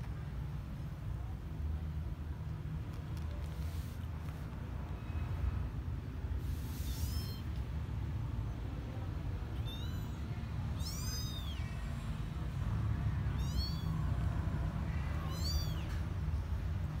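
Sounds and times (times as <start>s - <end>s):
kittens mewing: 6.7s - 7.6s, 9.4s - 12.0s, 13.2s - 16.0s.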